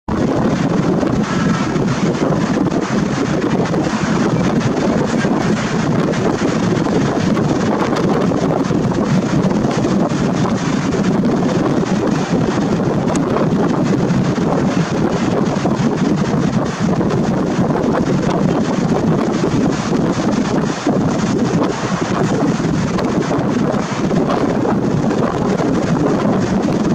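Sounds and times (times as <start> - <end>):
wind buffeting microphone: 0.1 - 26.9.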